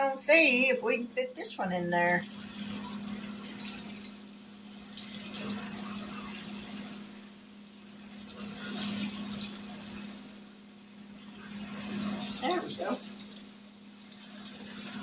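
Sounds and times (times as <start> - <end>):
meat sizzling in a skillet: 2.0 - 15.0.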